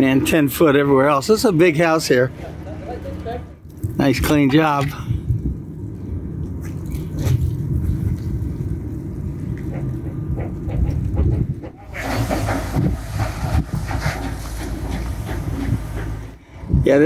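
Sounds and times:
wind buffeting microphone: 3.8s - 17.0s
hissing outdoor noise: 11.9s - 16.4s.

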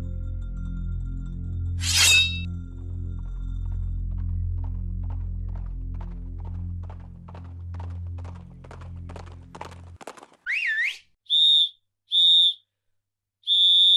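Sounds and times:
low droning music: 0.0s - 10.0s
sliding shrill whistle: 1.8s - 2.5s, 10.5s - 12.6s, 13.4s - 13.9s
quickening clacks: 3.6s - 10.7s
short whistle blasts: 10.5s - 12.6s, 13.4s - 13.9s.

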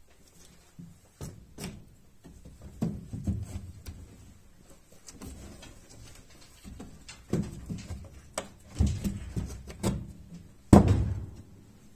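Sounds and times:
rabbit thumping on wooden floor: 1.2s - 4.3s, 5.1s - 11.6s.

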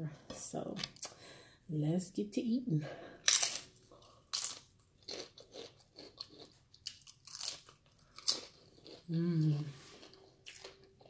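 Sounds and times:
person crunching chips: 3.2s - 11.0s.

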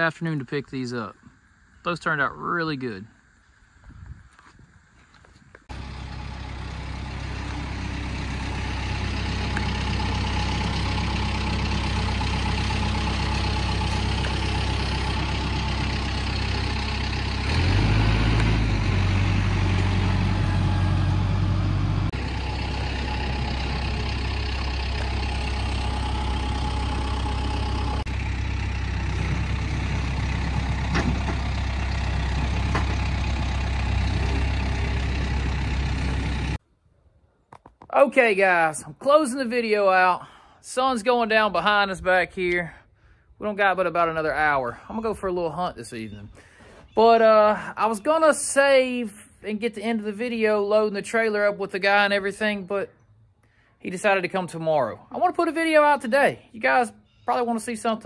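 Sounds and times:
engine idling: 5.7s - 36.6s.

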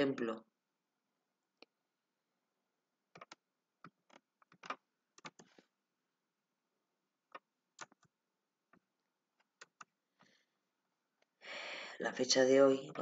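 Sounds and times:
computer mouse and keyboard clicks: 3.1s - 5.6s, 7.3s - 8.1s, 9.4s - 9.9s.

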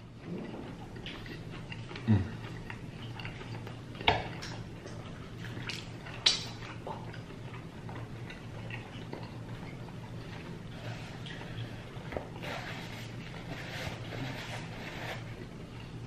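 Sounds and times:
steady low hum: 0.0s - 16.0s
eating clicks and smacks: 0.7s - 10.1s.

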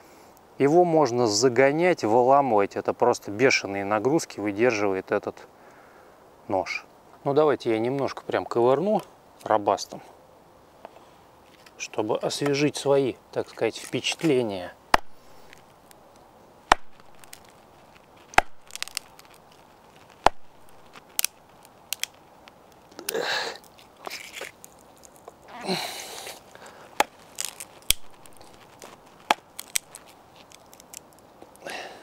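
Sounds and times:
wood splintering: 14.9s - 16.0s, 16.7s - 31.2s.

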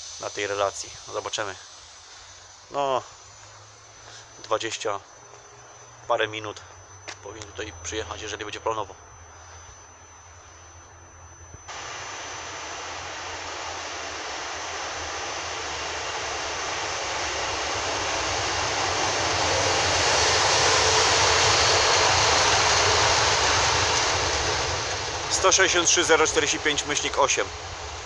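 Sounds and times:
electric locomotive passing: 11.7s - 28.0s.

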